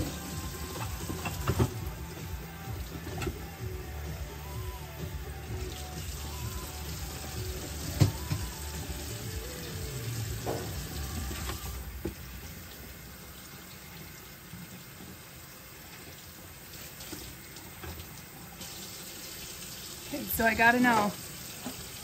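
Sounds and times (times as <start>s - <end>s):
faucet running into sink: 0.0s - 3.7s, 5.4s - 22.0s
cutting board knocking: 8.0s - 8.5s.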